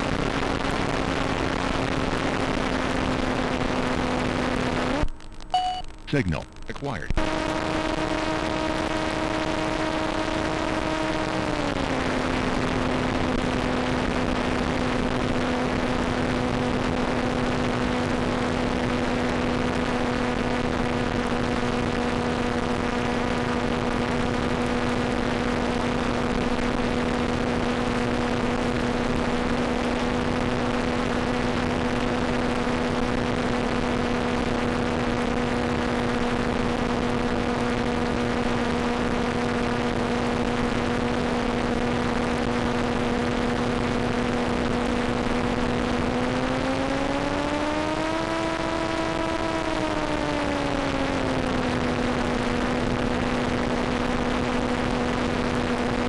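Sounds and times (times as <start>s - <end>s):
electric motor and propeller droning: 7.2s - 56.0s.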